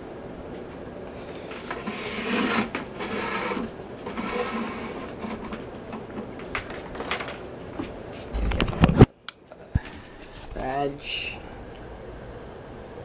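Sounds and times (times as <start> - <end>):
plastic fan base scraping on wood: 1.2 - 9.1.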